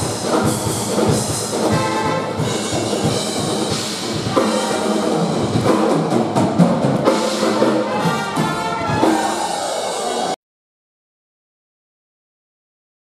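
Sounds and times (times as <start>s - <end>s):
drum kit: 0.0s - 10.4s
polka band playing: 0.0s - 10.4s.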